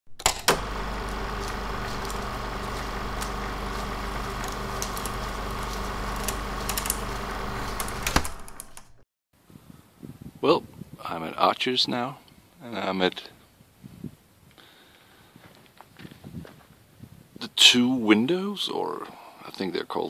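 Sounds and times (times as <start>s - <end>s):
clicks and crackles: 0.2s - 9.0s
low hum: 0.2s - 9.0s
mechanical rattle: 0.2s - 9.0s.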